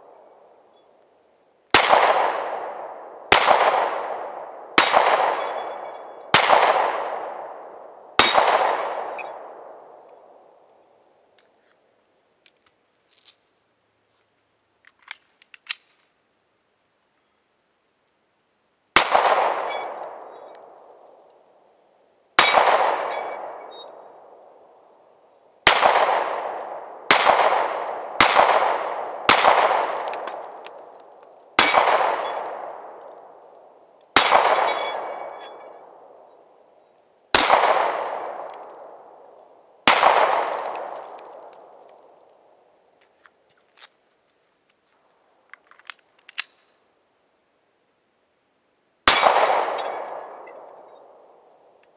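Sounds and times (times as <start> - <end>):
pistol shots echoing: 1.8 - 10.9, 19.0 - 21.3, 22.4 - 42.2, 49.1 - 51.6.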